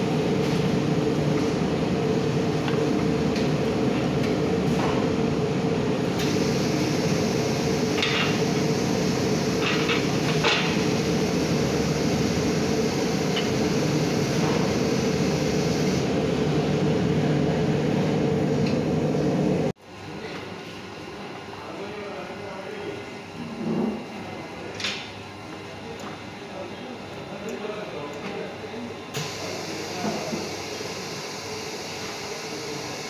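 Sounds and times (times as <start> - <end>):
machinery humming: 0.0 - 19.7, 28.7 - 33.0.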